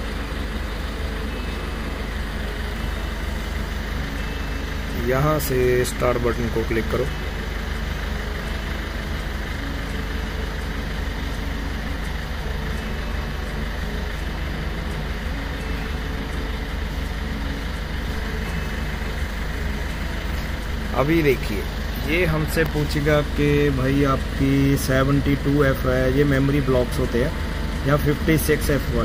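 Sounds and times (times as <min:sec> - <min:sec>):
low hum: 0:00.0 - 0:29.0.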